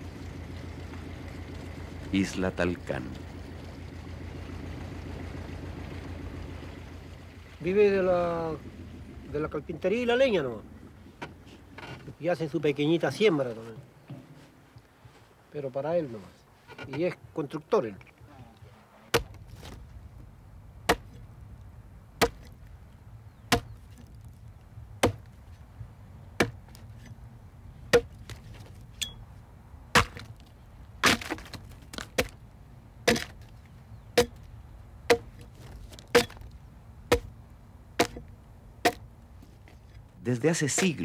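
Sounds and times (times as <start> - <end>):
hand tool chopping log: 19.1 - 19.8, 20.9 - 21.2, 22.2 - 22.6, 23.5 - 24.2, 25.0 - 25.4, 26.4 - 27.2, 27.9 - 29.2, 29.9 - 32.4, 33.0 - 33.5, 34.1 - 34.5, 35.1 - 37.4, 38.0 - 39.1, 40.6 - 41.0.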